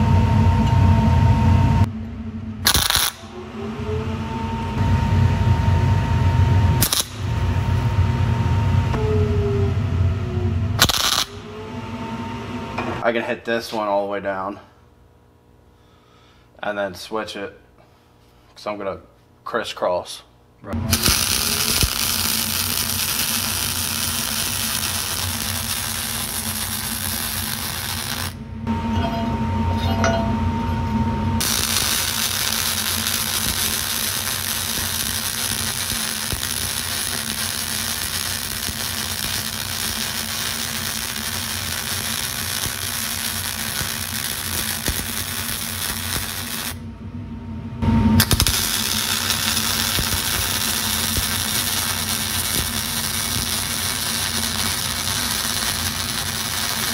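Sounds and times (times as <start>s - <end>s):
welder arc crackling and sizzling: 2.6s - 3.3s, 6.7s - 8.0s, 10.8s - 11.4s, 20.8s - 28.4s, 31.4s - 46.8s, 48.2s - 56.9s.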